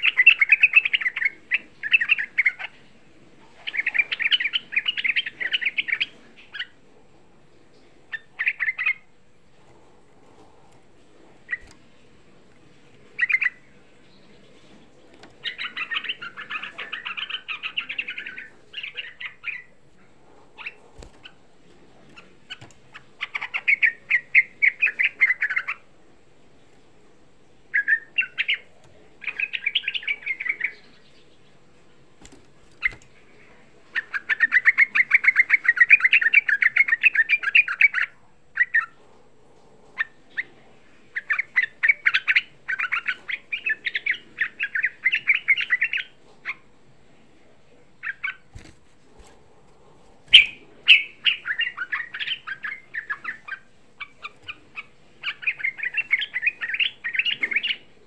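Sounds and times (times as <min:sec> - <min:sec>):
bulbul singing chattering song: 0:00.0 - 0:02.8, 0:03.6 - 0:06.8, 0:08.1 - 0:09.1, 0:13.1 - 0:19.8, 0:22.1 - 0:25.9, 0:27.6 - 0:31.6, 0:41.1 - 0:46.6, 0:50.2 - 0:58.0.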